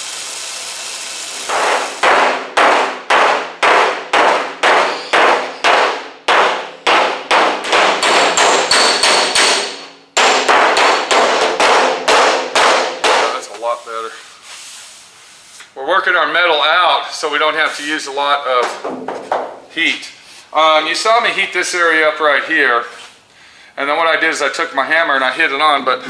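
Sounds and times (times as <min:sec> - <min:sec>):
hammer tapping on sheet metal: 0:01.5 - 0:13.5.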